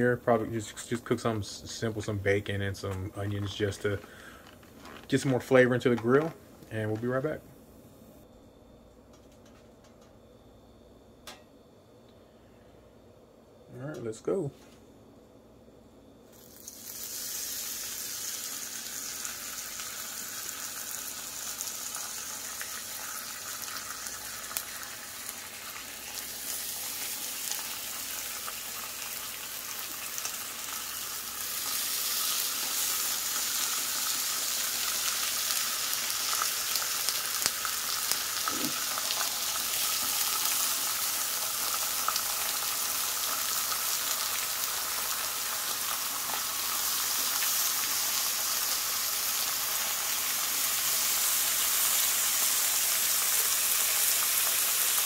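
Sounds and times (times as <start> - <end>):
bacon sizzling on a griddle: 16.3 - 55.0.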